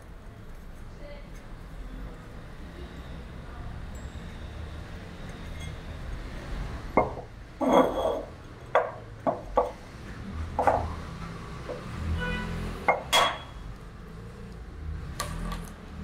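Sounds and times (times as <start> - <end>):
ceramic and brass clinks: 3.9 - 6.0, 7.2 - 9.2.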